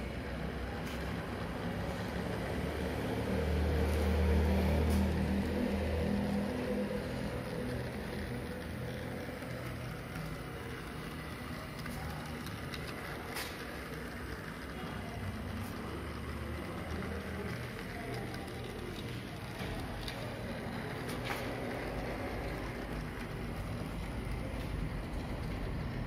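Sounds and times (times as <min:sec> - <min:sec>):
model train motor humming: 0:00.0 - 0:26.0.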